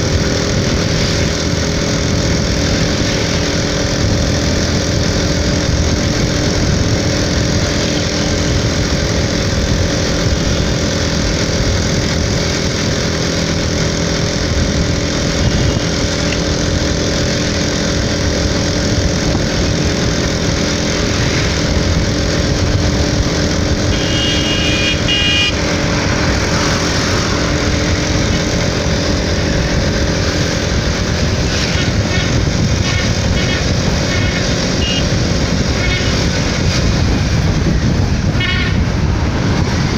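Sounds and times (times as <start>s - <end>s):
motorcycle engine running: 0.0s - 39.9s
wind and road noise: 0.0s - 39.9s
vehicle horn toot: 23.9s - 25.7s, 32.1s - 35.2s, 35.8s - 36.3s, 38.4s - 38.8s.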